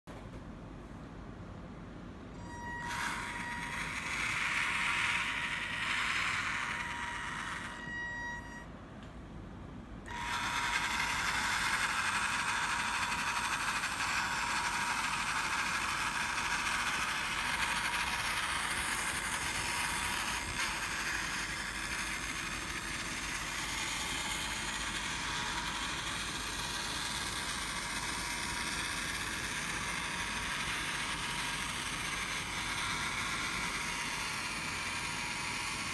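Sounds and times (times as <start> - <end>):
electric model tank motor whining: 2.5 - 8.6, 10.1 - 35.9.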